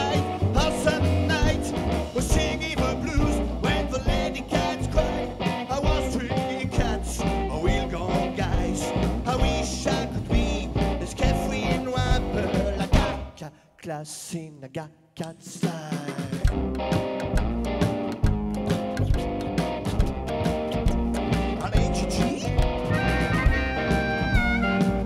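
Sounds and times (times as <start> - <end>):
drums with steady beat: 0.0 - 13.3, 15.4 - 25.0
electric guitar: 0.0 - 13.3, 16.2 - 25.0
man singing into microphone: 0.0 - 16.5, 21.5 - 22.6.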